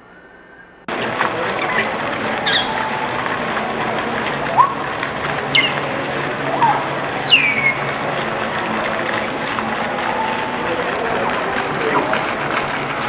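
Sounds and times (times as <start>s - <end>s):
parrots whistling: 0.9s - 8.0s
garden fountain splashing: 0.9s - 13.0s.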